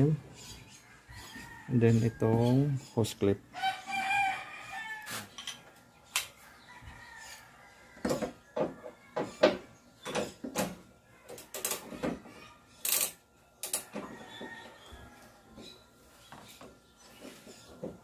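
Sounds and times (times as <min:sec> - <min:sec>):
tools and parts clicking and clanking: 0:05.2 - 0:06.4, 0:08.0 - 0:14.8.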